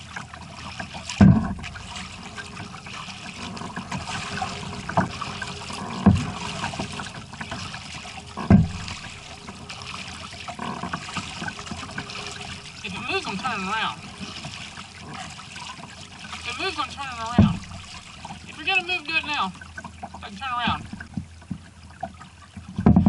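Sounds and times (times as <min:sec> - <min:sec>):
water splashing from paddle strokes: 0:00.0 - 0:23.0
dull low thumps: 0:00.9 - 0:12.9, 0:17.3 - 0:18.4, 0:20.7 - 0:21.6.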